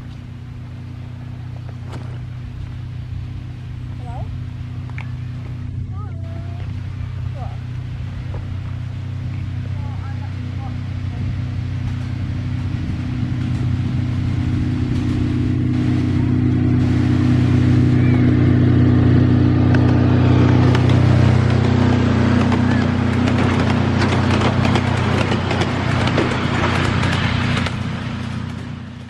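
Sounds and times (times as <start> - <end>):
locomotive engine hum: 0.0 - 29.0
carriage wheels clattering on track: 19.7 - 29.0.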